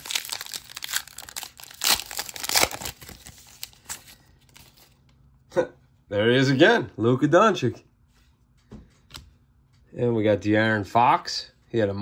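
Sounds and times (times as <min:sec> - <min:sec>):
foil wrapper crinkling: 0:00.0 - 0:05.0.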